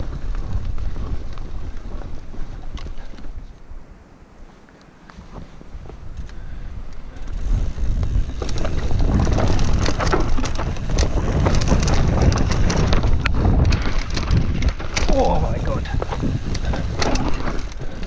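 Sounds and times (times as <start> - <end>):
mountain bike rattling over trail: 0.0 - 3.4, 5.3 - 18.0
wind buffeting microphone: 0.0 - 3.9, 5.2 - 18.0
bike tyres knocking on bumps: 7.4 - 18.0.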